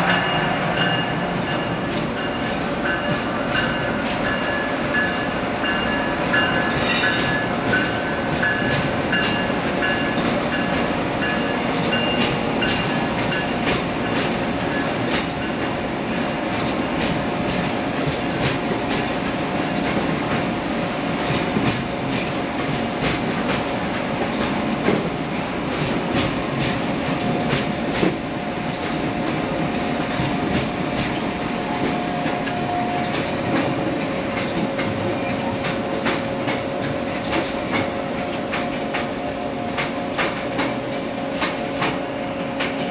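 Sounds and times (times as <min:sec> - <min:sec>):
train wheels rumbling on rail: 0:00.0 - 0:42.9
clicking over rail joints: 0:35.6 - 0:42.9.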